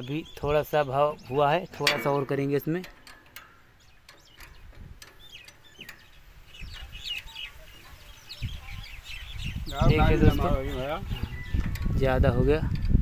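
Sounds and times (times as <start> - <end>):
birds chirping: 0.0 - 12.9
faint clutch linkage clicks: 1.7 - 7.4.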